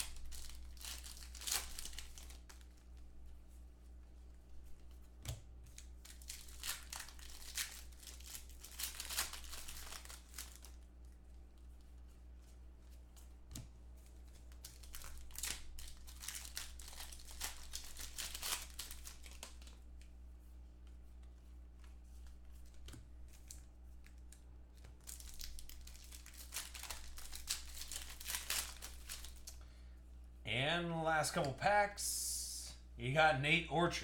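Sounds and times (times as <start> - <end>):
foil wrappers crinkling and tearing: 0.0 - 3.0, 5.7 - 10.9, 14.4 - 19.8, 23.3 - 29.6
low electrical hum: 0.0 - 34.0.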